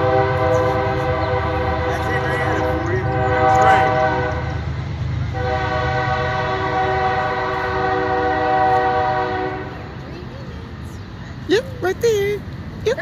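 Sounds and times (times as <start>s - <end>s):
train horn multi-tone chord: 0.0s - 4.7s, 5.3s - 9.8s.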